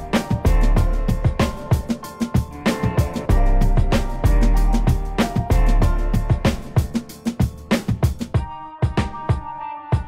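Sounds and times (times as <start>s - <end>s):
steady drum beat: 0.0s - 10.0s.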